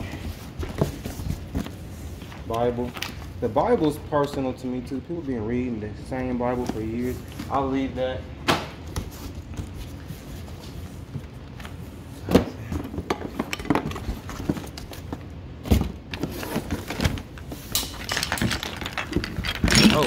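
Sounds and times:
rummaging through a cardboard box: 0:00.0 - 0:02.2, 0:09.0 - 0:20.0
knocks and clatters: 0:12.3 - 0:20.0.

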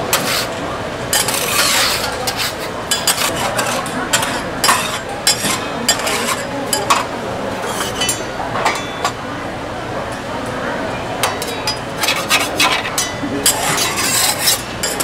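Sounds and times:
utensils and containers clinking: 0:01.1 - 0:09.2, 0:11.2 - 0:15.0.

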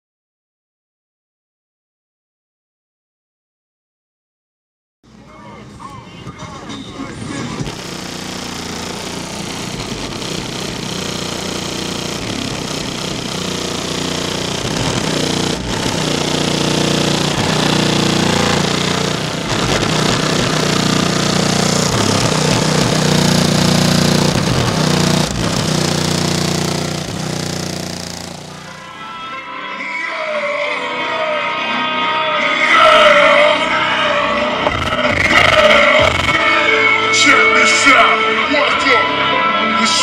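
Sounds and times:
distorted bass-heavy music: 0:06.4 - 0:29.5, 0:32.5 - 0:39.1.

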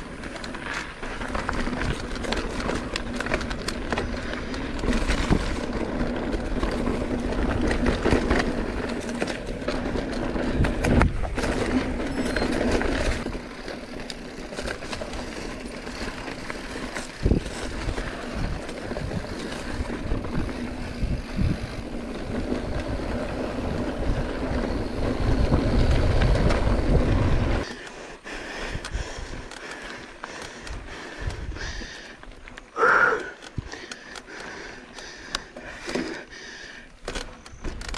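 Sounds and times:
bike clattering over bumps: 0:00.0 - 0:27.7
tyres on loose dirt: 0:00.0 - 0:37.9
wind buffeting microphone: 0:01.2 - 0:13.5, 0:16.4 - 0:27.7.

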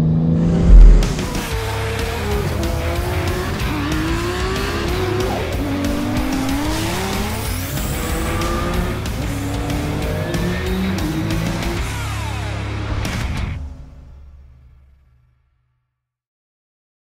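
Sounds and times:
car engine revving: 0:00.0 - 0:11.9
background music: 0:00.2 - 0:14.6.

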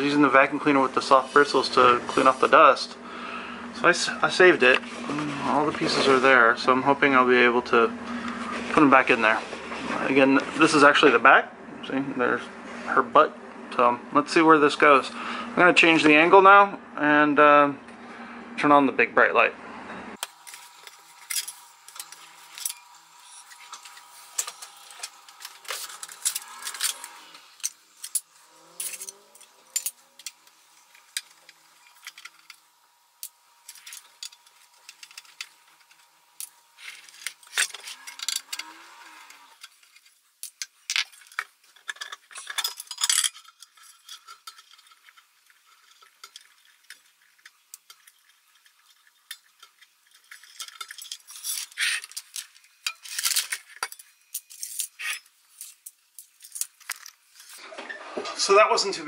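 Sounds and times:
faint steady whine: 0:00.0 - 0:59.0.

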